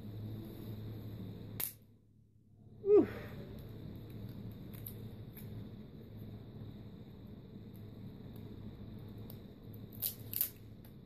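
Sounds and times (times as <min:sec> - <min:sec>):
man sighing: 0:02.8 - 0:03.4.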